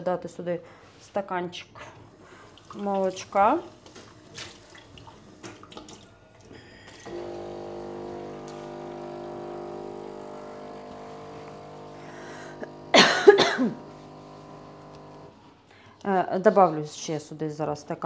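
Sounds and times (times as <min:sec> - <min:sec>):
kitchen appliance humming: 0:06.8 - 0:15.5
person coughing: 0:12.6 - 0:13.9.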